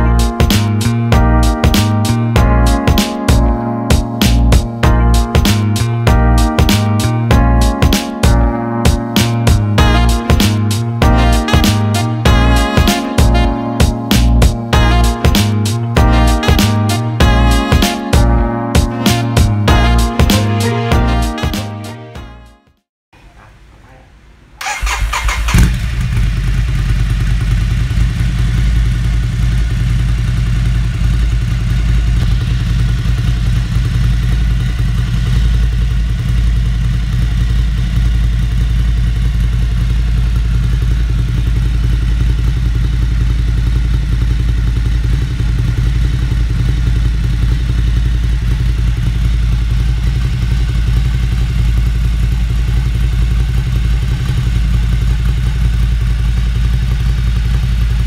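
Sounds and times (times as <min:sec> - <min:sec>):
motorcycle engine idling: 0:24.6 - 0:58.0.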